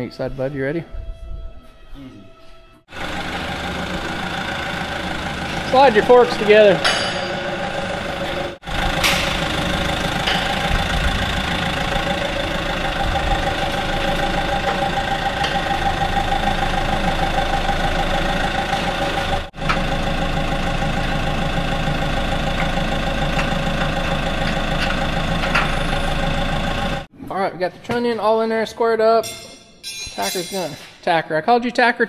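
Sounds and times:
forklift engine idling: 2.9 - 27.1.

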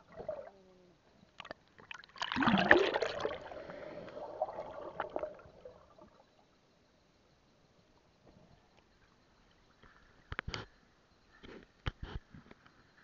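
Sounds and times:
bubbling gurgling water: 0.0 - 0.5, 1.4 - 6.3.

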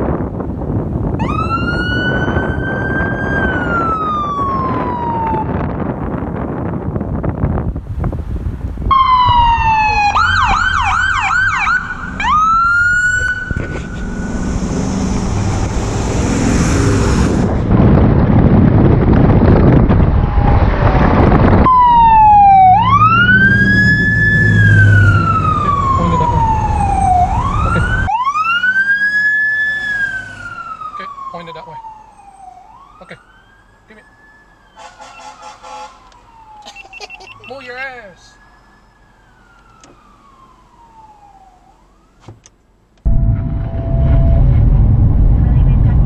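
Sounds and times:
rushing traffic and engine noise: 0.0 - 46.0
yelp siren warble: 1.2 - 5.7, 8.9 - 17.4, 21.7 - 42.2
wail siren: 1.2 - 5.9, 8.9 - 17.4, 21.6 - 42.2.

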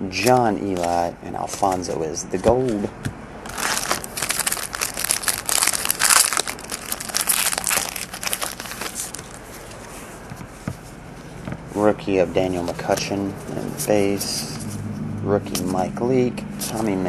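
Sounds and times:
foil wrapper crinkling: 3.5 - 9.9.

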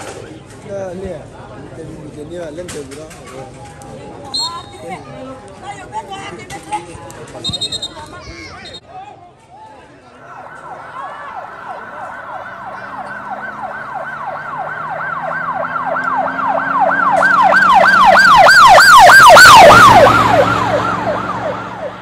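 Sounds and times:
yelping siren: 10.2 - 22.0.

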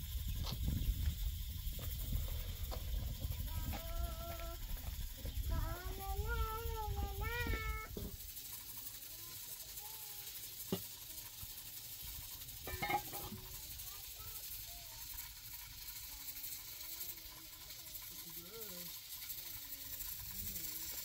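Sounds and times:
wood fire hissing: 0.0 - 21.0
child's voice: 3.3 - 8.0, 9.1 - 10.4, 13.5 - 15.2, 16.0 - 17.9
glass cups clinking: 12.6 - 13.5.

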